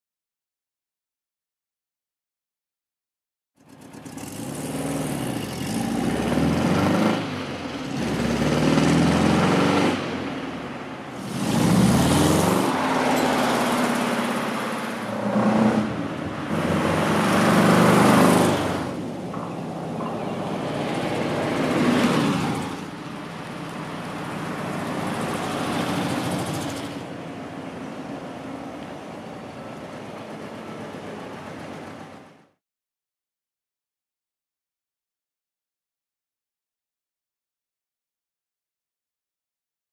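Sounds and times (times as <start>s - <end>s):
car engine driving past accelerating: 11.2s - 19.5s.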